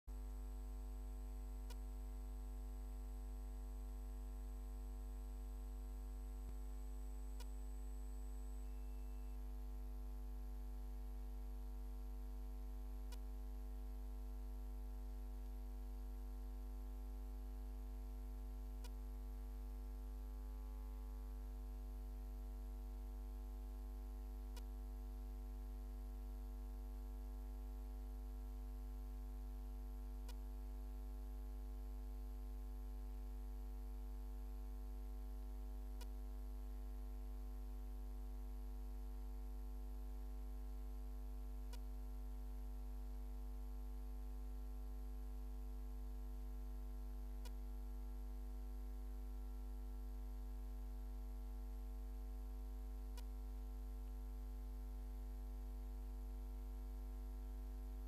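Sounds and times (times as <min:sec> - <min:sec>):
electrical mains hum: 0:00.1 - 0:44.0
faint click: 0:01.6 - 0:02.4, 0:07.3 - 0:09.4, 0:13.0 - 0:13.4, 0:18.8 - 0:19.7, 0:24.4 - 0:24.8, 0:30.2 - 0:30.5, 0:35.9 - 0:36.3, 0:41.6 - 0:42.4, 0:47.4 - 0:47.7, 0:53.0 - 0:53.5.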